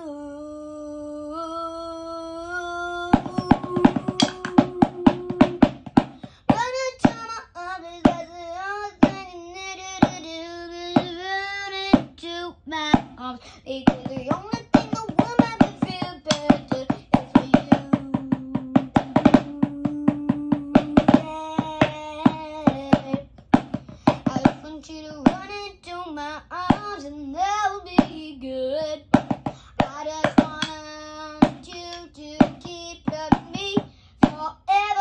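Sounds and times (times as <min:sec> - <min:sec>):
person singing wordlessly: 0:00.0 - 0:23.3, 0:24.1 - 0:35.0
hand taps: 0:03.2 - 0:07.2, 0:13.8 - 0:25.5, 0:26.7 - 0:27.0, 0:29.1 - 0:34.4.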